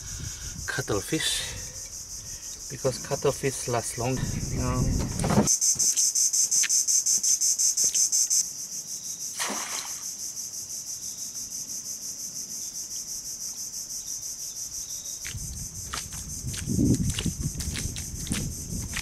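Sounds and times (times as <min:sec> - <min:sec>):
insects chorus: 0:00.0 - 0:19.0
trap splashing into water: 0:09.4 - 0:10.1.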